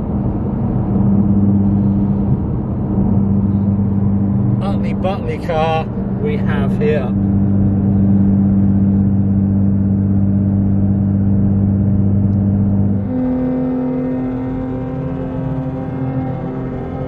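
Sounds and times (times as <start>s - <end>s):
car engine and road drone: 0.0s - 17.0s
high-pitched drone: 12.9s - 17.0s.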